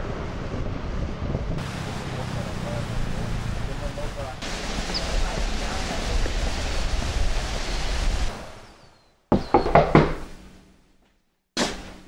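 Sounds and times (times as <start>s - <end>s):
outdoor wind noise: 0.0s - 12.0s
knocks on a door: 9.3s - 10.3s.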